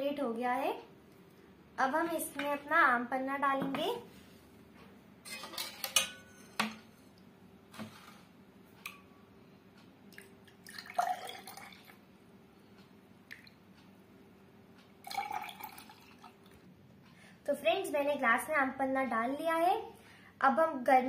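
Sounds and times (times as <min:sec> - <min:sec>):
ladle clinking against pot: 0:05.2 - 0:06.9
liquid splashing into glass: 0:10.2 - 0:12.0.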